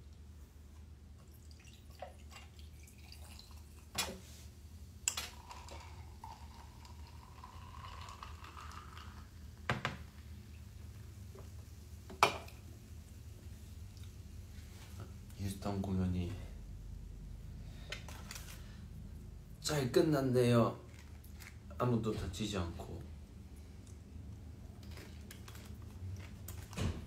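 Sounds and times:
cola pouring and fizzing: 1.2 - 14.4.

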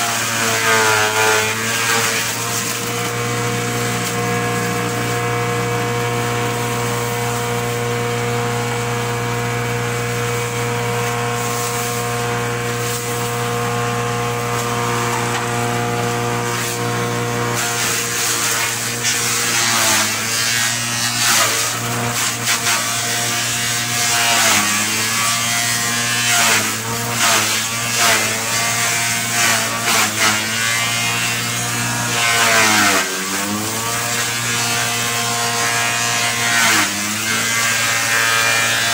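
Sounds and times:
forage chopper motor running: 0.0 - 38.9
grass stalks shredding: 0.9 - 7.8, 11.0 - 13.5, 14.3 - 16.8.

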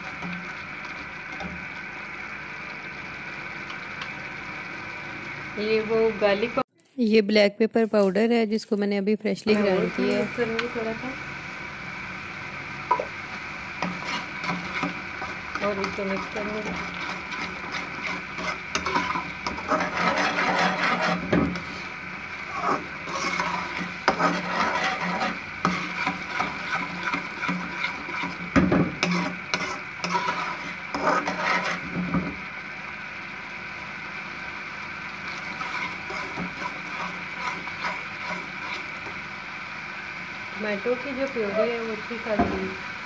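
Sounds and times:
steady hum: 7.7 - 42.3
metal spoon scraping a pan: 13.7 - 32.4, 35.2 - 39.2.

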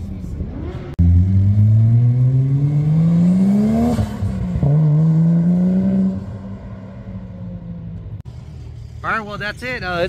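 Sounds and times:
car engine accelerating hard: 0.5 - 7.2.

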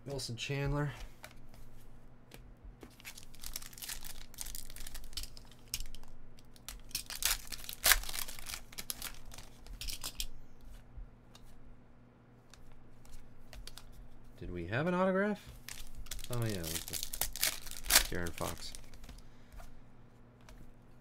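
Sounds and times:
foil wrapper tearing and crinkling: 3.0 - 10.1, 15.7 - 19.1.

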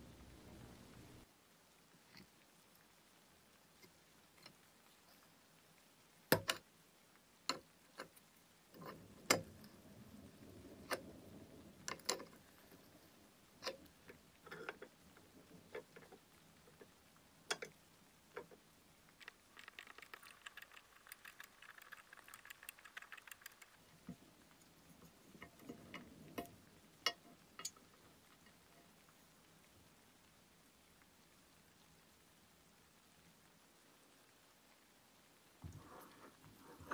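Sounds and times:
small metallic clicks and taps: 6.3 - 6.7, 7.5 - 9.8, 11.8 - 13.0, 13.6 - 29.1.

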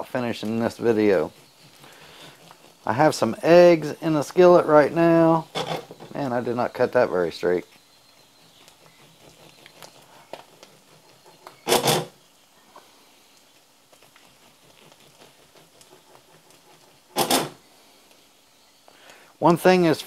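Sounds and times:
bread knife sawing bread: 0.0 - 12.2, 14.0 - 17.6.

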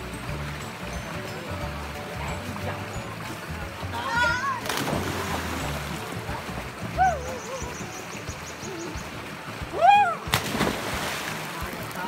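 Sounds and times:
loud splash into water: 4.6 - 6.0, 10.2 - 11.7.

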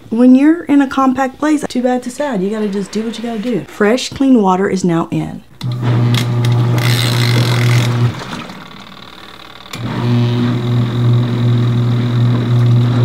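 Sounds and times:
washing machine motor humming: 5.6 - 13.0.

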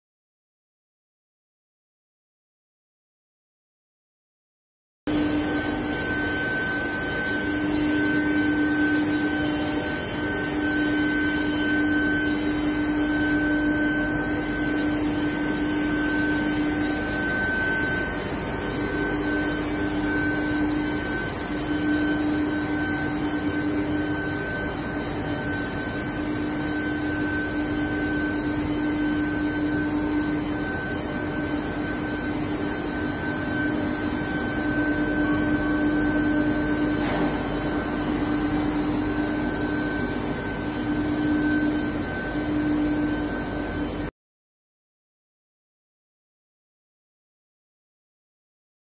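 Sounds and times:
electrical hum: 5.1 - 44.1
high whining tones: 5.1 - 44.1.

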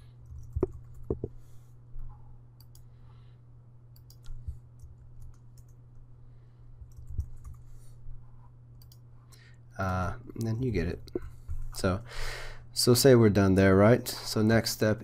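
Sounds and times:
keyboard typing: 0.2 - 1.3, 4.0 - 5.8, 6.9 - 7.7.

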